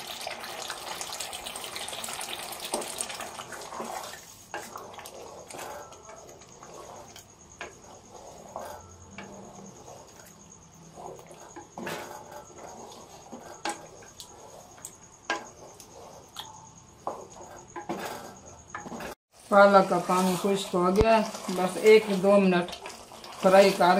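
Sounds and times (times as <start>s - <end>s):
curry frying: 0.0s - 23.9s
wooden spoon stirring curry: 0.4s - 23.9s
spoon scraping and knocking pot: 2.7s - 19.2s.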